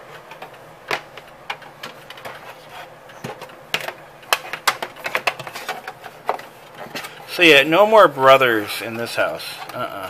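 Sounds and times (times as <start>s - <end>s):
hard objects clicking and knocking: 0.0s - 7.3s.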